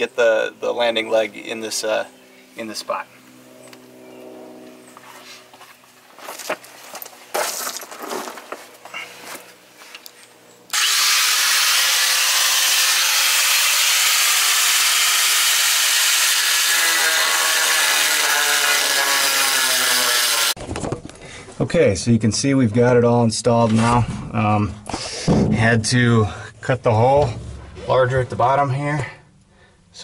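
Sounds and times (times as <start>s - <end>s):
angle grinder cutting steel: 10.7s - 20.6s.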